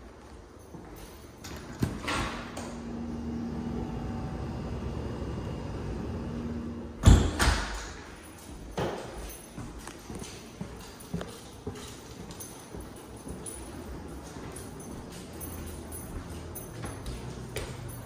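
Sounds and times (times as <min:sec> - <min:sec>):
low background hum: 0:00.0 - 0:18.0
door slamming shut: 0:07.0 - 0:08.1
footsteps on hard floor: 0:08.4 - 0:18.0.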